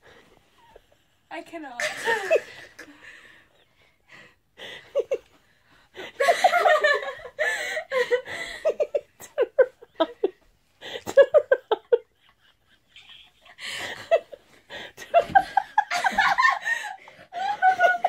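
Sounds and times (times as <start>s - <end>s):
people laughing hard: 6.0s - 18.0s.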